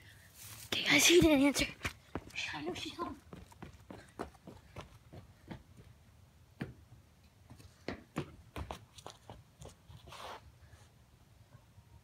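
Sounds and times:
soft rustle: 0:00.0 - 0:01.2
child's footsteps on concrete: 0:00.4 - 0:06.0, 0:06.6 - 0:10.4.

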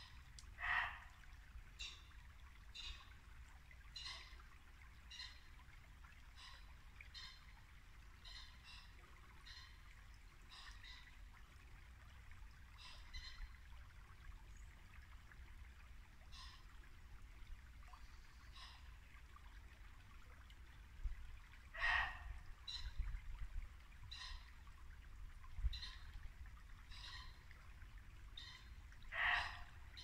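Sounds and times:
shallow brook babbling: 0:00.0 - 0:30.0
deer barking: 0:00.6 - 0:01.1, 0:21.8 - 0:22.2, 0:29.1 - 0:29.7.

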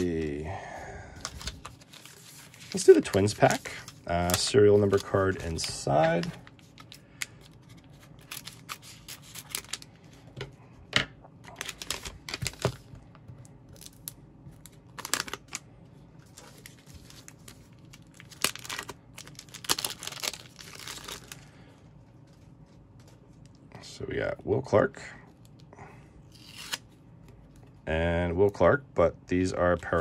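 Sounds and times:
plastic pouch crinkling and tearing: 0:01.2 - 0:09.9, 0:11.5 - 0:12.8, 0:13.8 - 0:15.6, 0:16.2 - 0:21.5, 0:26.3 - 0:26.8.

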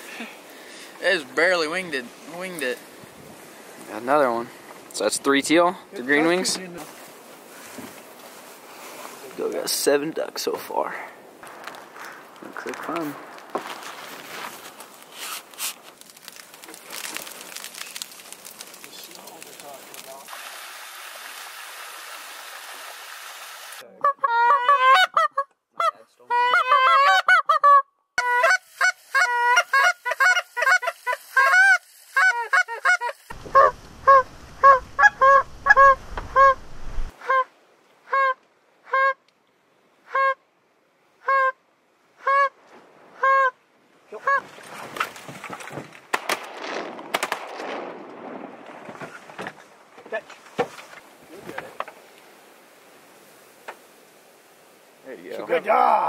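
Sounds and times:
rough rustling: 0:06.0 - 0:22.9, 0:44.4 - 0:55.8
goose honking: 0:24.0 - 0:36.6.

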